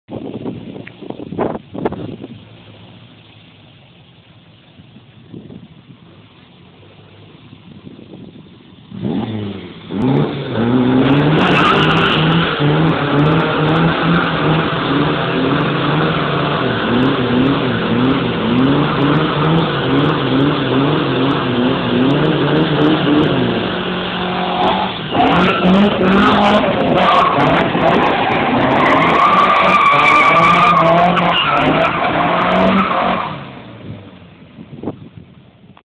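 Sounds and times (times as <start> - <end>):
tyres spinning on tarmac: 2.0 - 34.2
car engine revving: 8.6 - 34.1.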